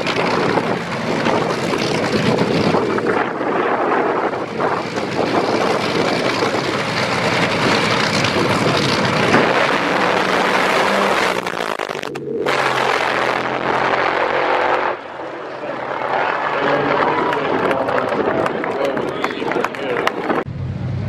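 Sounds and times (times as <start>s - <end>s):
wind on microphone: 0.0s - 15.1s
dragster engines roaring: 0.0s - 21.0s.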